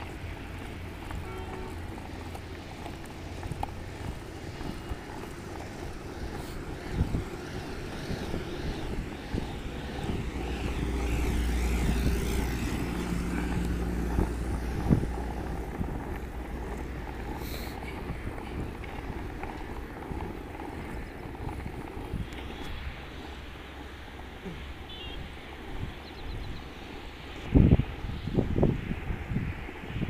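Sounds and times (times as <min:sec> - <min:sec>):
wheels rolling over asphalt: 0:00.0 - 0:30.0.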